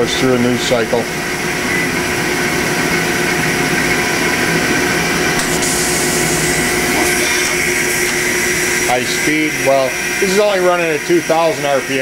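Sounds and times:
machine hum and whine: 0:00.0 - 0:12.0
bright hiss: 0:05.4 - 0:08.9.

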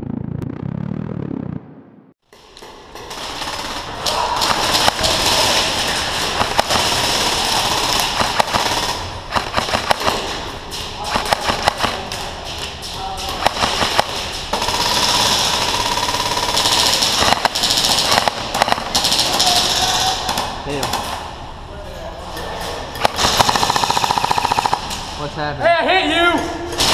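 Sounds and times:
airsoft rifles firing in bursts: 0:03.0 - 0:21.1, 0:23.0 - 0:25.1
people shouting: 0:03.8 - 0:06.6, 0:19.1 - 0:20.3.

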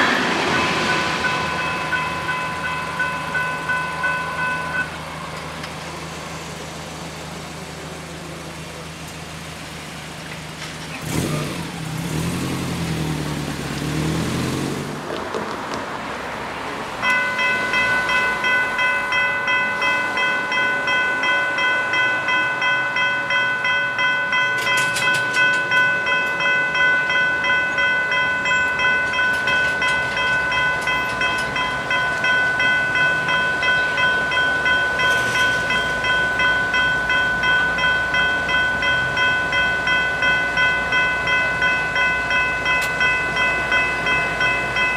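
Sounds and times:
level crossing bells ringing: 0:00.0 - 0:06.6, 0:16.9 - 0:44.9
vehicle engine passing: 0:05.8 - 0:17.0.

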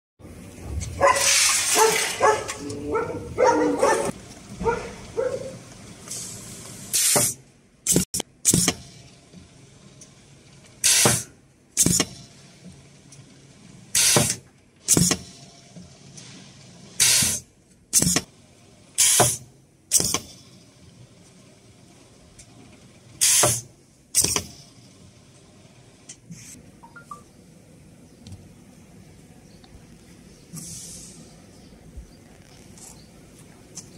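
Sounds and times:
voices talking: 0:02.3 - 0:04.1
pneumatic press air hissing: 0:06.1 - 0:09.1, 0:10.8 - 0:12.4, 0:13.9 - 0:15.4, 0:17.0 - 0:18.3, 0:19.0 - 0:20.5, 0:23.2 - 0:24.7, 0:30.5 - 0:31.4.

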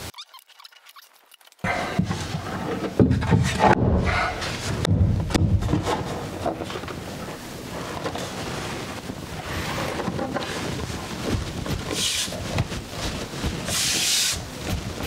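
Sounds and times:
wood scraping and rubbing: 0:00.0 - 0:15.0
wooden knocks: 0:01.6 - 0:07.0.

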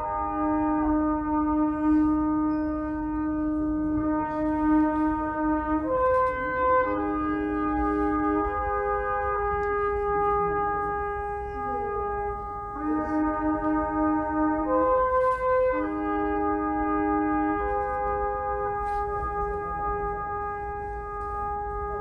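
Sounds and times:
solemn wind instrument chords: 0:00.0 - 0:22.0.

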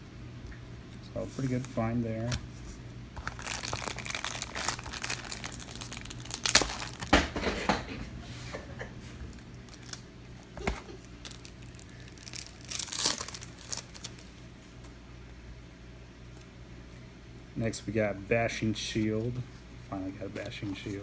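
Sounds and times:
wrapper crinkling and tearing: 0:03.2 - 0:07.2, 0:09.2 - 0:14.3.

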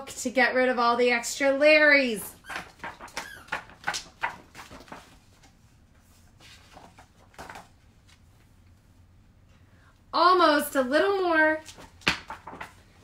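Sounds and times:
book pages rattling when shaken: 0:02.4 - 0:08.3, 0:11.6 - 0:13.0.

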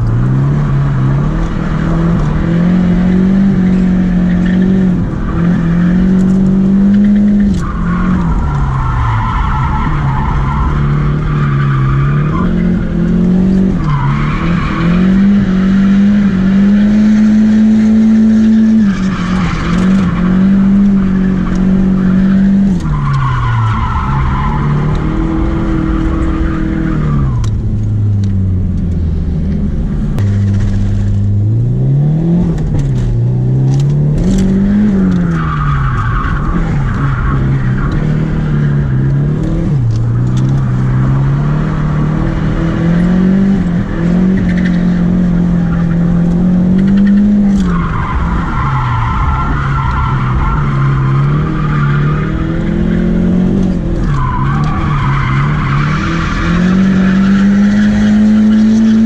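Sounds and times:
car engine revving: 0:00.0 - 0:59.0
tyre squeal: 0:17.2 - 0:27.5, 0:44.3 - 0:59.0.

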